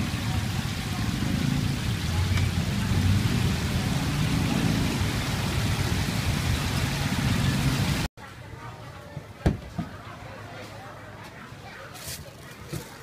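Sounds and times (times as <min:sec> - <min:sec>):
chicken sizzling in deep fryer: 0:00.0 - 0:08.1.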